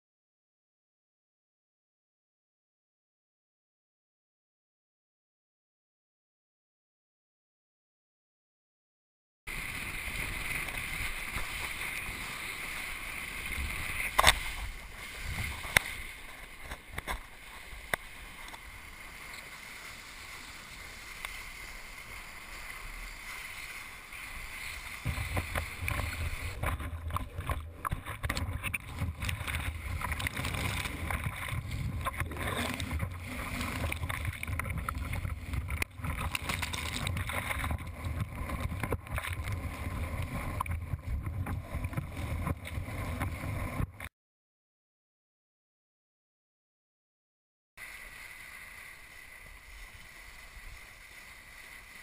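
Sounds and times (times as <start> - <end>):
water splashing: 9.5 - 44.0
board skimming water: 9.5 - 44.1, 47.8 - 52.0
wind buffeting microphone: 25.0 - 36.3.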